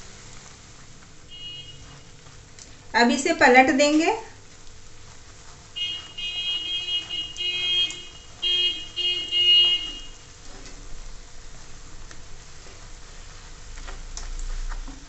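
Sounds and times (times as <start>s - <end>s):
bread frying in hot oil: 0.0s - 15.0s
loud horn-like tone: 1.3s - 2.1s, 5.8s - 10.3s.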